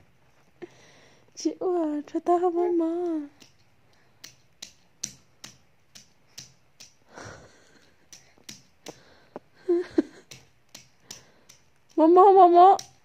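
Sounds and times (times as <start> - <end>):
palms slapping a wall: 3.1 - 13.0.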